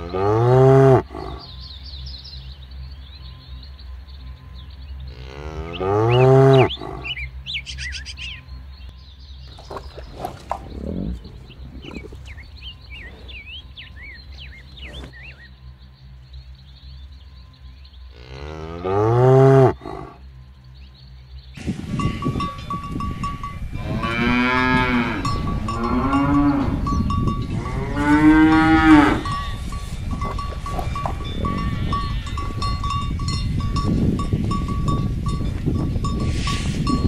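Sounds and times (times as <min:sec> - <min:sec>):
cows mooing: 0:00.0 - 0:01.7, 0:05.0 - 0:08.4, 0:09.6 - 0:15.6, 0:18.1 - 0:20.2, 0:22.1 - 0:34.7
birds chirping: 0:00.0 - 0:37.0.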